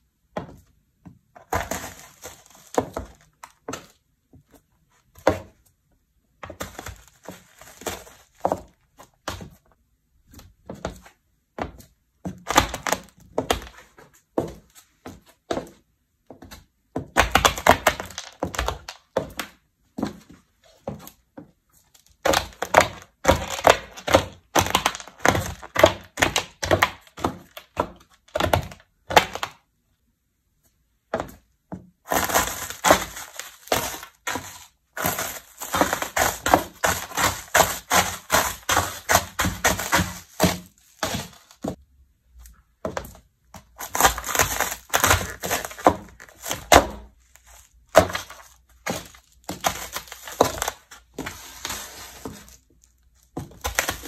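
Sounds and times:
hard food crunching under shoe: 32.1 - 41.8, 43.7 - 54.0.

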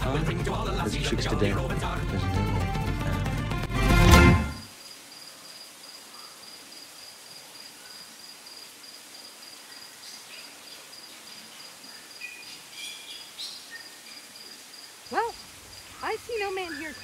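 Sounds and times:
insect chirping: 4.6 - 17.0.

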